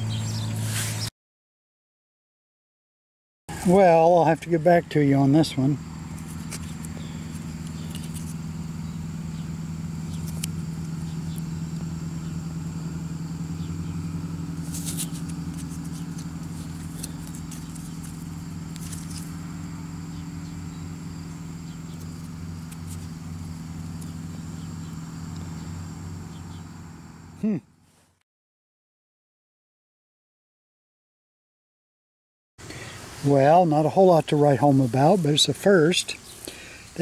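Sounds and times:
motor humming: 5.6s - 27.4s
faint handling clicks and rustles: 6.1s - 8.4s, 14.6s - 19.4s.

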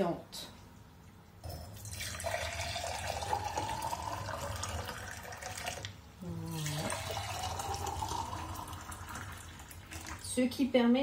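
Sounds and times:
water pouring into glass jars: 1.6s - 10.4s.

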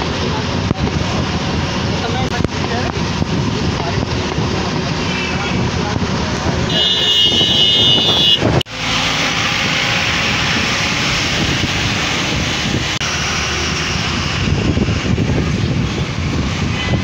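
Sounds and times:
low engine rumble: 0.0s - 17.0s
wind and road noise: 0.0s - 17.0s.

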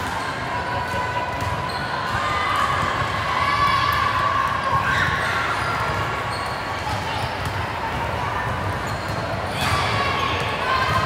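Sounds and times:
murmur of voices: 0.0s - 11.0s
sneakers squeaking: 0.1s - 3.0s, 4.6s - 11.0s.

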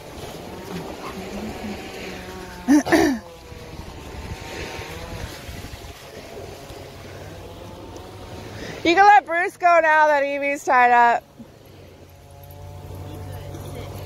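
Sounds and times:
distant engine droning: 0.0s - 14.0s.

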